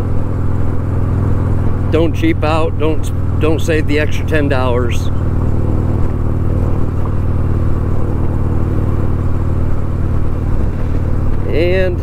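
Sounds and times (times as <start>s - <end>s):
motorcycle engine running: 0.0s - 12.0s
wind noise: 5.1s - 12.0s.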